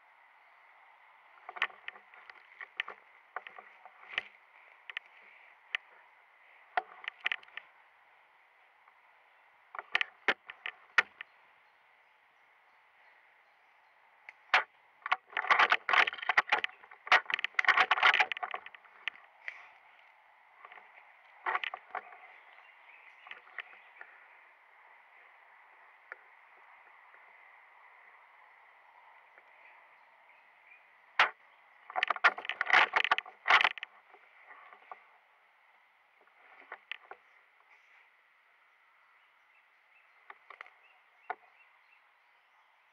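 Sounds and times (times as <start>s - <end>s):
twig cracking: 1.3s - 6.0s, 6.7s - 7.7s, 14.3s - 24.2s, 31.2s - 34.1s
sharp clicks: 1.4s - 6.0s, 6.7s - 7.7s, 9.7s - 11.3s, 14.3s - 22.3s, 31.2s - 33.9s, 40.3s - 41.4s.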